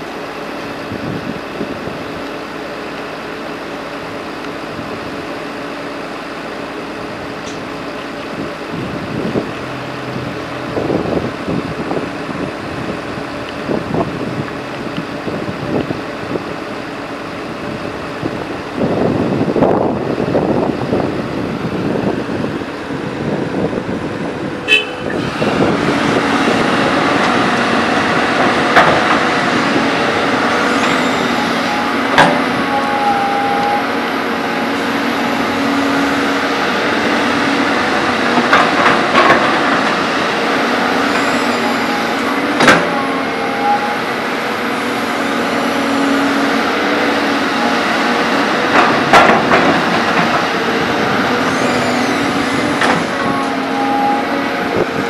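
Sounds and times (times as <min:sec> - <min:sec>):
excavator diesel engine running: 0:00.0 - 0:55.0
high-pitched toot: 0:24.7 - 0:25.2, 0:30.7 - 0:34.0, 0:41.1 - 0:44.2, 0:51.4 - 0:54.4.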